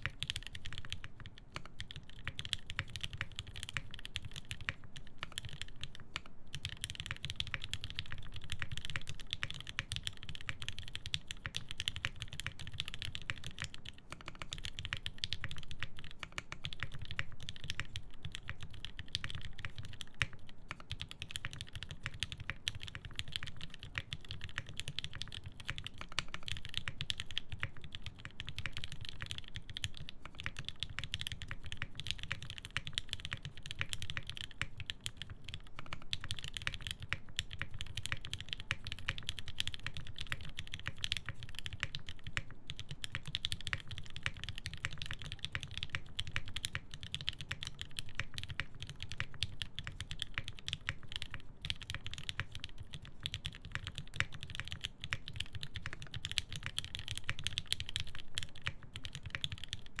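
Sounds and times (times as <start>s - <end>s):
mechanical keyboard typing: 0.0s - 60.0s.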